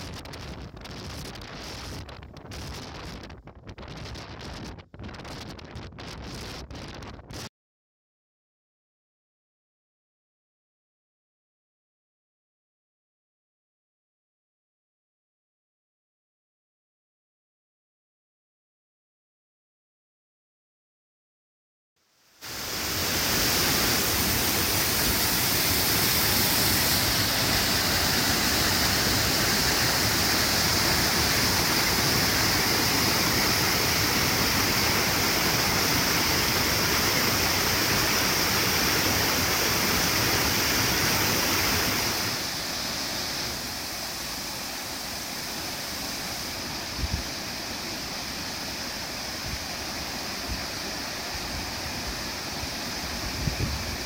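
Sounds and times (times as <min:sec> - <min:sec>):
waterfall rushing and splashing: 0:22.4 - 0:54.0.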